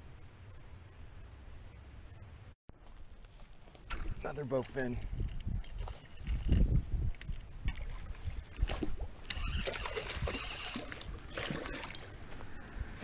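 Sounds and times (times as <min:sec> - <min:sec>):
fish splashing in water: 0:07.7 - 0:12.2.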